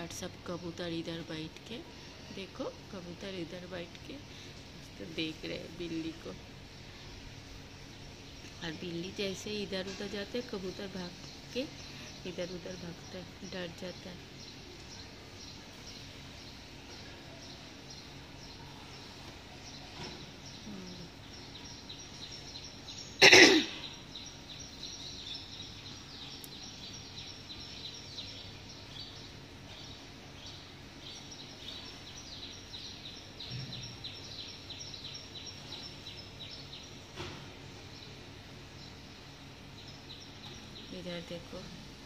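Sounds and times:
small birds chirping: 0.0 - 42.0
person coughing: 23.2 - 23.8.

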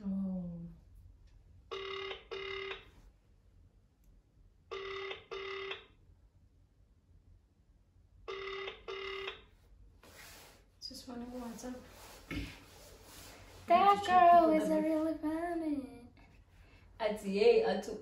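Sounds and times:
telephone ringback tone: 1.7 - 2.9, 4.7 - 5.9, 8.3 - 9.4.

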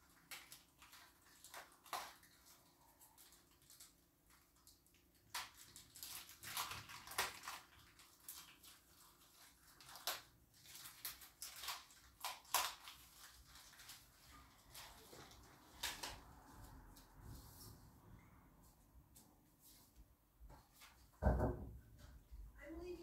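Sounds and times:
plastic toy clicking and snapping: 9.8 - 13.0.

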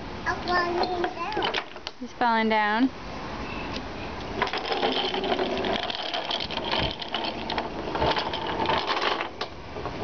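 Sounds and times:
pull toy clattering on wooden boards: 4.4 - 9.5.

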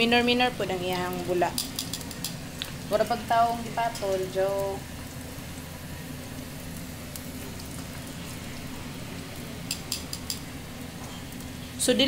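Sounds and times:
oil sizzling and bubbling: 0.0 - 12.0
tongs clicking: 9.6 - 10.5.

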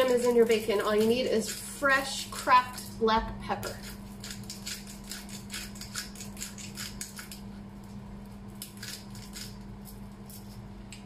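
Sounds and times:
pepper grinder crunching: 0.0 - 3.0, 3.6 - 11.0.

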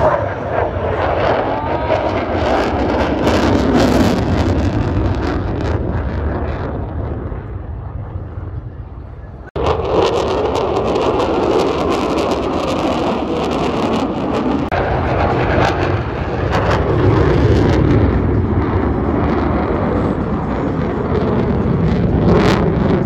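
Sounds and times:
jet engine roar: 0.0 - 23.0
wind on microphone: 0.0 - 23.0.

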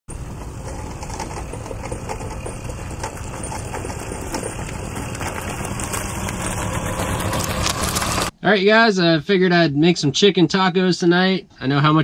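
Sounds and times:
moped engine approaching: 0.1 - 8.3.

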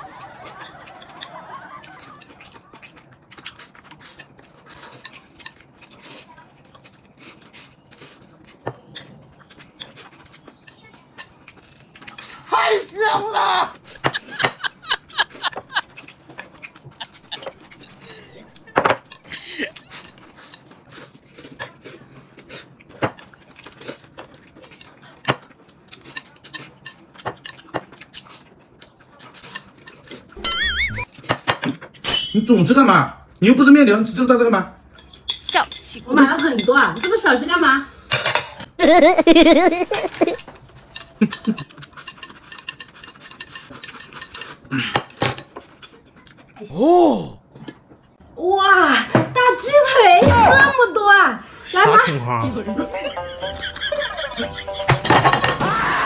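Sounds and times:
noodles slurped and chewed: 0.0 - 12.5, 13.8 - 32.0, 40.1 - 46.7
chopsticks clicking on plates: 40.1 - 46.2.

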